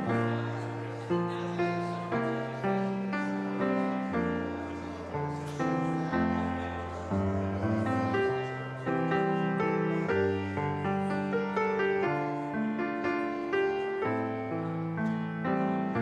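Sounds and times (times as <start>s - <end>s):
piano chords: 0.0s - 16.0s.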